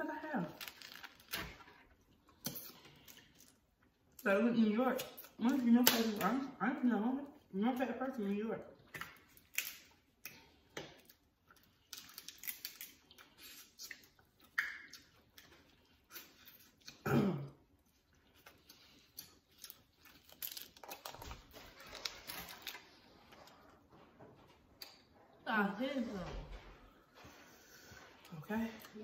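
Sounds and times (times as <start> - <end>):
crab shells cracking: 0.6 - 3.5, 8.9 - 11.2, 11.8 - 13.1, 19.1 - 22.8
person chewing: 0.6 - 4.2, 8.8 - 23.9.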